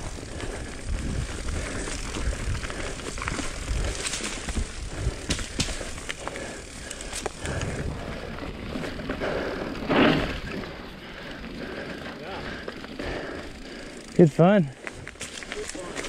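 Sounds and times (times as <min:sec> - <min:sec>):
wind rumble on microphone: 0:00.0 - 0:05.5, 0:07.4 - 0:09.0
bike chain clicking and clattering: 0:00.0 - 0:16.0
bike tyres rolling over leaves: 0:00.0 - 0:16.0.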